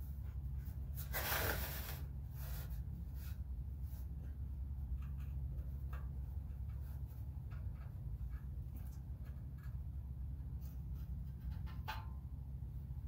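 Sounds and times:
faint rubbing and handling: 0.0s - 9.8s
steady low hum: 0.0s - 13.0s.

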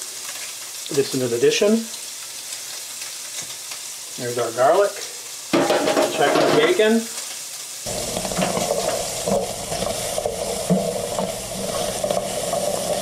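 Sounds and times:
bacon sizzling in a frying pan: 0.0s - 13.0s
utensil knocking against pan: 5.6s - 6.8s.

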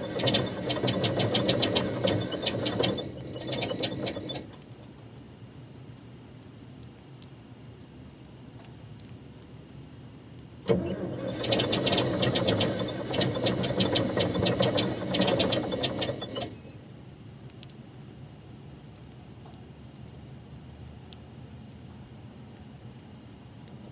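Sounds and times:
diesel engine cranking and firing: 0.0s - 4.5s, 10.7s - 16.7s.

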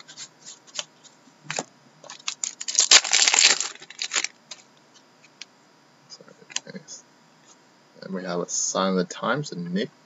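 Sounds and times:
cards rustling: 1.5s - 4.6s.

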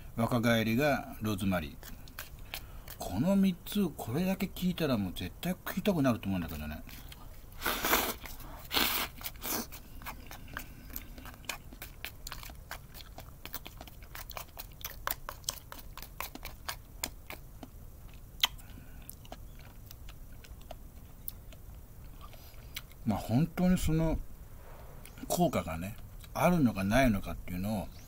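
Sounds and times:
man chewing: 1.7s - 3.3s, 6.2s - 23.0s, 25.0s - 25.4s
noisy bursts: 23.1s - 27.6s.

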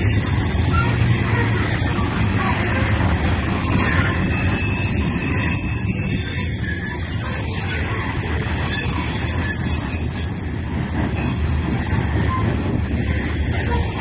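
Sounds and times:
freight train wheels rumbling: 0.0s - 14.0s
high wheel squeal: 0.0s - 14.0s.

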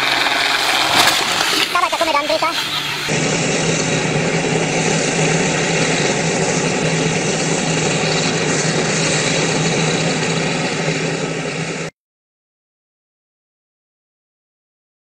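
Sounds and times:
turboprop engine running: 0.0s - 12.0s.

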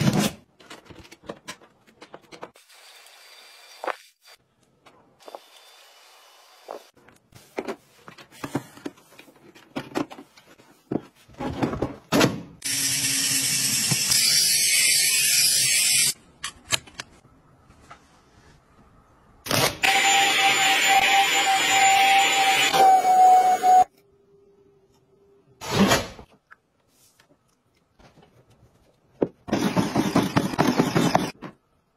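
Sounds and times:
electric scrub brush whirring: 19.8s - 23.8s.

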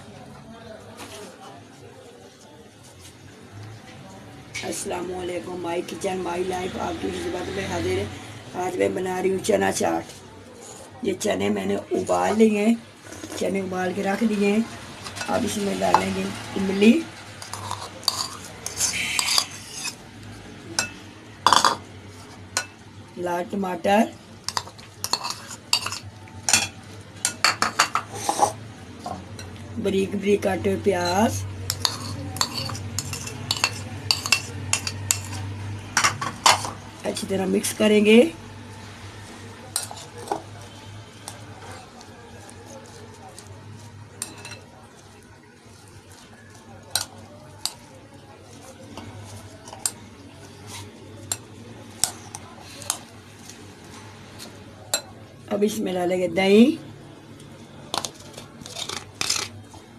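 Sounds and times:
spoon scraping in bowl: 13.0s - 13.5s, 17.4s - 20.0s, 20.8s - 22.8s, 24.5s - 29.6s, 31.0s - 37.3s, 39.6s - 47.8s, 48.6s - 55.1s, 57.9s - 59.8s
metal spoon clinking on glass bowl: 17.4s - 20.0s, 24.5s - 28.0s, 31.0s - 35.4s
spoon clinking against glass: 31.0s - 35.4s.

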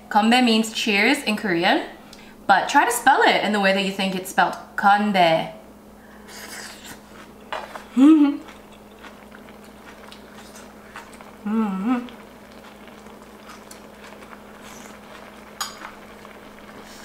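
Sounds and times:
stew simmering and sizzling: 6.1s - 17.0s
person humming: 7.8s - 8.5s, 11.4s - 12.2s.

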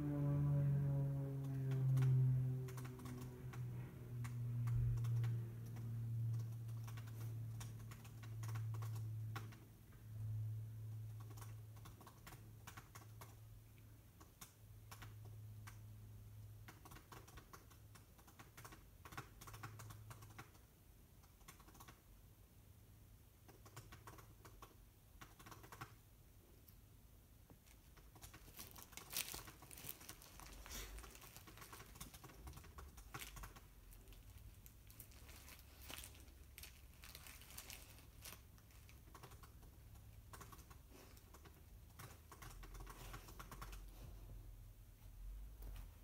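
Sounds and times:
low hum: 0.0s - 11.8s.

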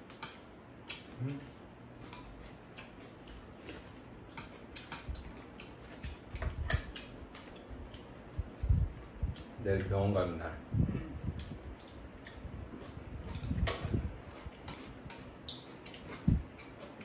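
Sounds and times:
soft eating noises: 0.0s - 17.0s.

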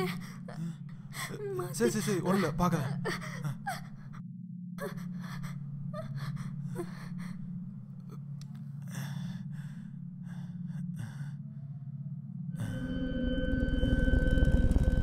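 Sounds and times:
person whimpering: 0.0s - 4.2s
person gasping and breathing heavily: 4.8s - 7.5s, 8.8s - 11.5s
loud sustained music cue: 12.6s - 15.0s.

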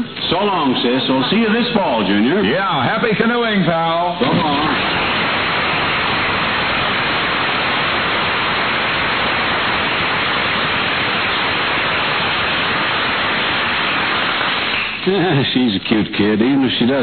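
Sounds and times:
dialogue: 0.0s - 5.0s, 15.0s - 17.0s
audience applauding: 4.2s - 15.6s.

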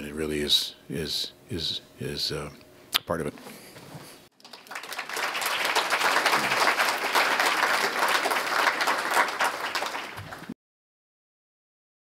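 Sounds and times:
audience applauding: 4.4s - 10.6s.

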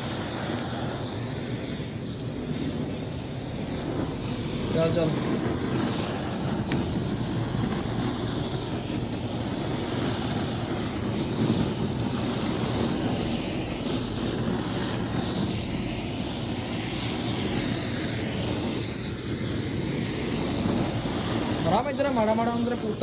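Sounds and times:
gas flame rushing: 0.0s - 23.0s.

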